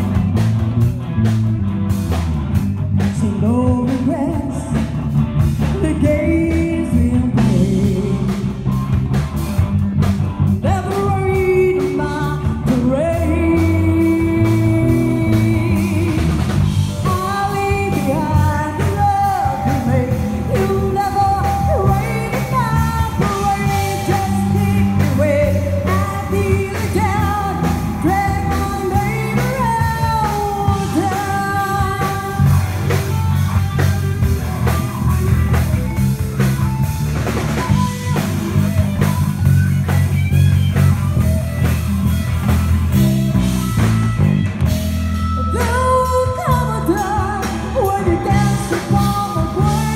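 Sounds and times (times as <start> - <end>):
bass guitar: 0.0 - 49.9
drum kit: 0.0 - 49.9
electric guitars: 0.0 - 49.9.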